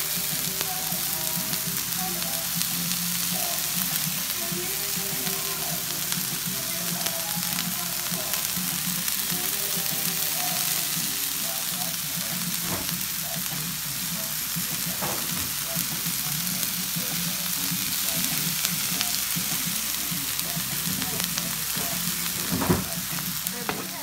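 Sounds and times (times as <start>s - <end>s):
vegetables sizzling in oil: 0.0s - 24.0s.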